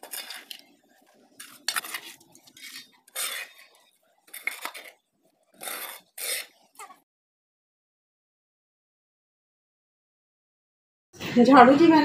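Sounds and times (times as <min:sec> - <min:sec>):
metal plate scraping concrete: 0:01.4 - 0:04.9, 0:05.6 - 0:06.9.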